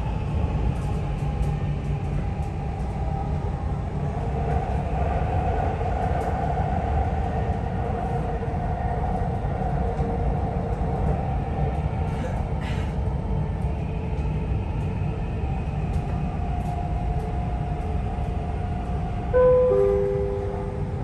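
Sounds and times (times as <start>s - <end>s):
train carriage rumble: 0.0s - 21.0s.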